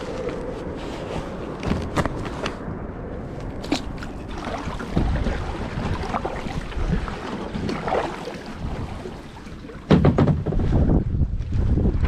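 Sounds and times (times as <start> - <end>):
wind buffeting microphone: 0.0 - 12.0
paddle splashing in water: 3.6 - 10.8.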